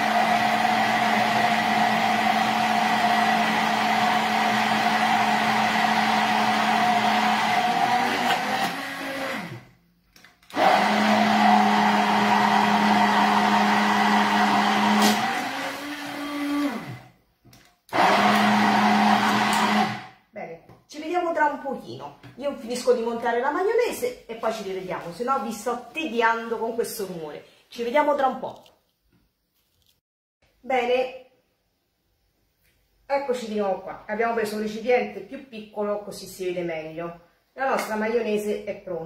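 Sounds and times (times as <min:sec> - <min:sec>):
immersion blender motor whine: 0:00.0 - 0:09.7, 0:10.5 - 0:17.2, 0:17.9 - 0:20.2.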